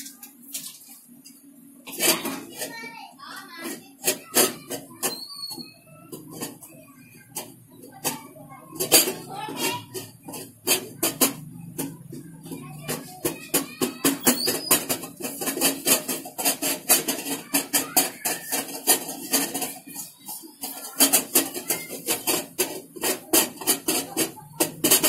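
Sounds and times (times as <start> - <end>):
metal spoon scraping steel bowl: 14.2 - 25.0.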